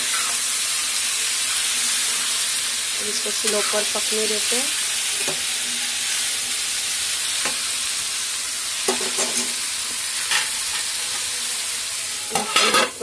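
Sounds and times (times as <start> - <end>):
vegetables sizzling in oil: 0.0 - 13.0
spatula scraping a pan: 12.2 - 13.0.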